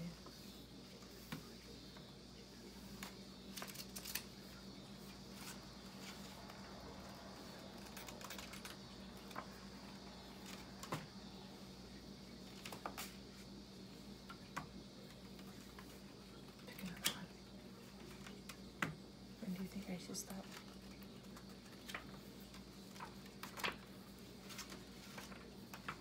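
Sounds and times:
faint steady hum: 0:00.0 - 0:26.0
book pages flicking: 0:02.9 - 0:11.1, 0:12.5 - 0:13.4, 0:20.4 - 0:26.0.

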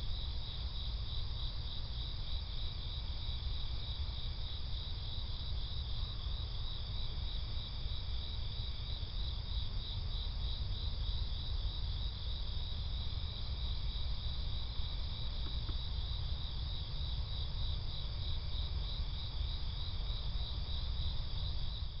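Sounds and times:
crickets chirping: 0:00.0 - 0:22.0.

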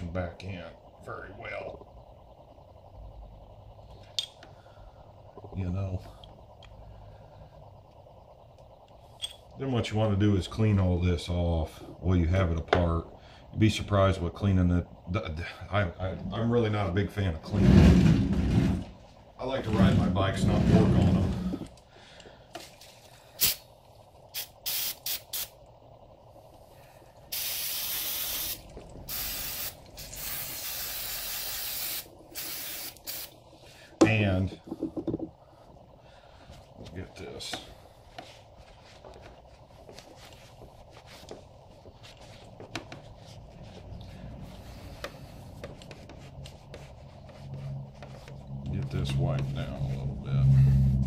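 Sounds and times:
low steady hum: 0:00.0 - 0:51.0
aerosol spraying: 0:23.4 - 0:23.7, 0:24.3 - 0:25.6, 0:27.3 - 0:33.4.

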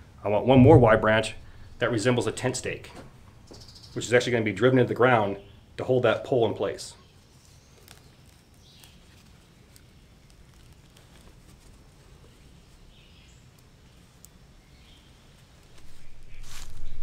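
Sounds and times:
low steady background: 0:00.0 - 0:17.0
faint bird chirps: 0:03.5 - 0:04.2.

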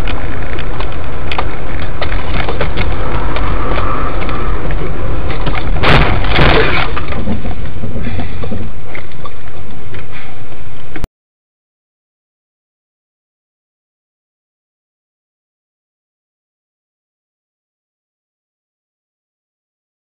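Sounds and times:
car road and engine rumble: 0:00.0 - 0:11.1
car crash crunching impact: 0:05.2 - 0:07.5.

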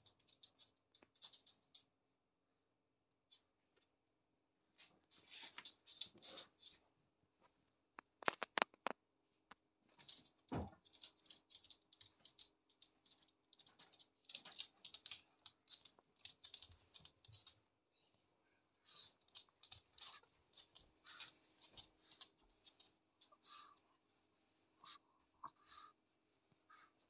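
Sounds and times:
dog claws on hard floor: 0:09.9 - 0:17.6, 0:19.0 - 0:23.7.

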